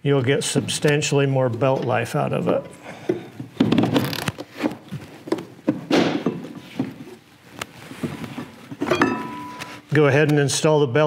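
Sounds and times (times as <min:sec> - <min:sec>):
rubber and metal knocks and clicks: 0:03.1 - 0:07.1.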